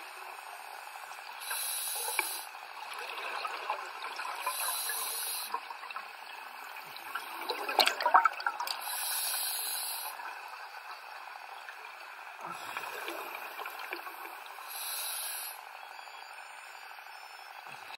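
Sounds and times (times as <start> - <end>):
regulator hissing inhalations: 0.0 - 2.7, 4.4 - 5.7, 8.8 - 10.4, 12.4 - 17.9
exhaled bubbles crackling: 1.2 - 9.0, 10.0 - 14.6.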